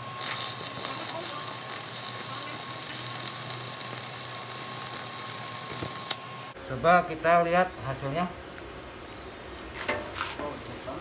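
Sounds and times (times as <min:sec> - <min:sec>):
welding arc hissing: 0:00.0 - 0:06.2.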